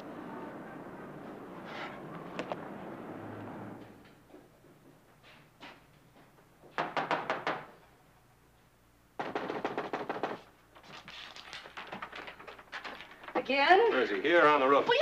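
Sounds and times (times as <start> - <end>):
knocking on door: 6.8 - 7.7, 9.2 - 10.5.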